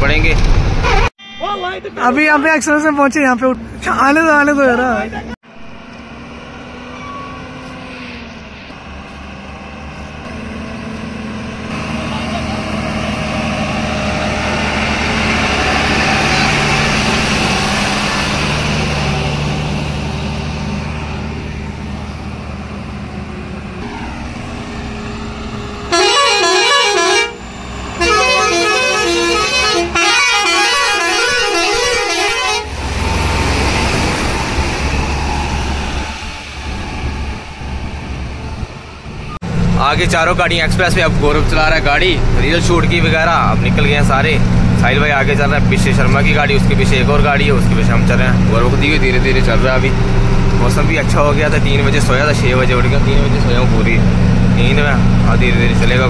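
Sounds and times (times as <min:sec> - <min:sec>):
diesel trucks driving past: 0:00.0 - 0:56.0
musical air horn tune: 0:25.9 - 0:27.4, 0:28.0 - 0:32.8.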